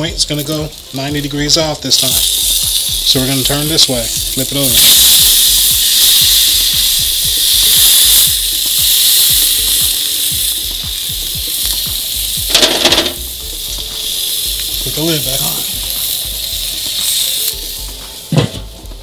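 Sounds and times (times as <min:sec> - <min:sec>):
steak sizzling on grill: 0:00.0 - 0:19.0.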